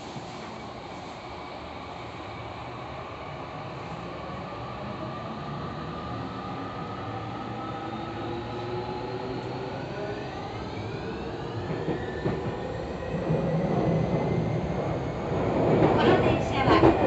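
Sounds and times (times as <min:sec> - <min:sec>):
wheels rumbling on rail: 0:10.4 - 0:17.0.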